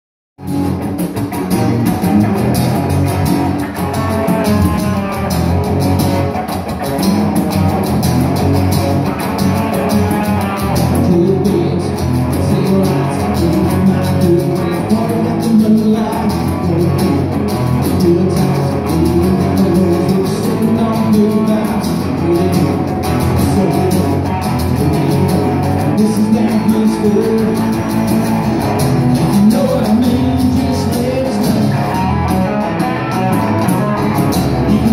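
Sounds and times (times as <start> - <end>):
drum kit: 0.4 - 34.9
electric bass: 0.4 - 34.9
electric guitar: 0.4 - 34.9
strummed acoustic guitar: 0.4 - 34.9
man singing lead: 3.7 - 5.4, 9.6 - 28.4, 29.0 - 33.7, 34.4 - 34.9.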